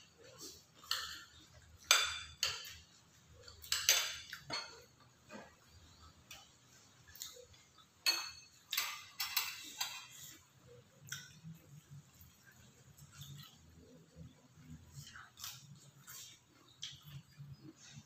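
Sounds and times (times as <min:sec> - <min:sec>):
cutlery clinking on ceramic bowls: 0:00.0 - 0:11.8.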